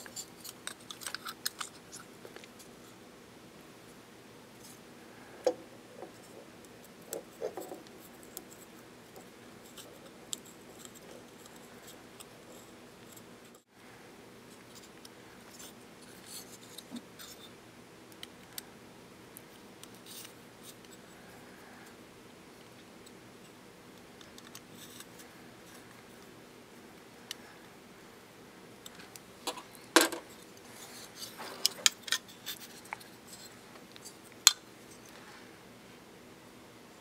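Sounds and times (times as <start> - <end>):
faint steady hum: 0.0 - 37.0.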